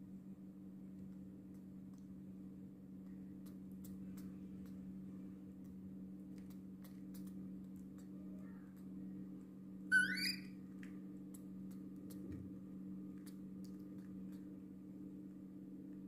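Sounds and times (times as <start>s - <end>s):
baby monkey squeaking: 9.9s - 10.5s.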